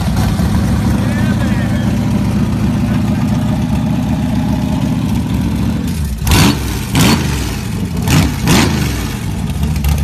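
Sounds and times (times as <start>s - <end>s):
motorcycle engine idling: 0.0s - 6.3s, 9.1s - 10.0s
motorcycle engine revving: 0.0s - 10.0s.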